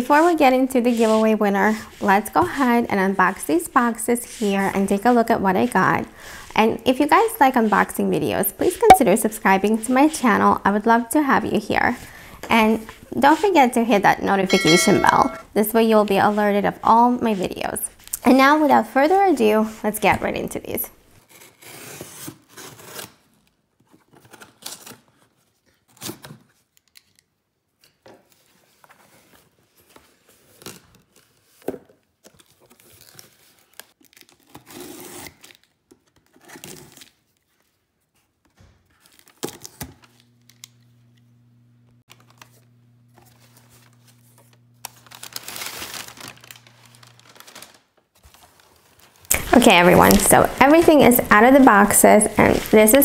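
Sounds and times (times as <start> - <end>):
packaging tearing and crinkling: 32.2 - 37.5, 38.9 - 40.2, 43.4 - 51.7.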